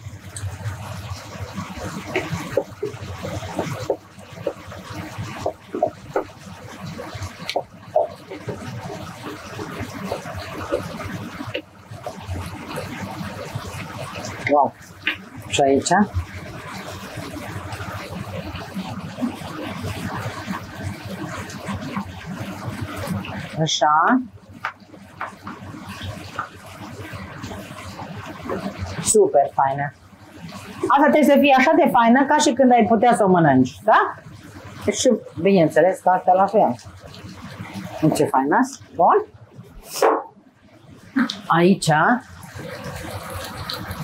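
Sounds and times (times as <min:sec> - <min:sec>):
wooden spoon knocking a pot: 0:05.4 - 0:06.3.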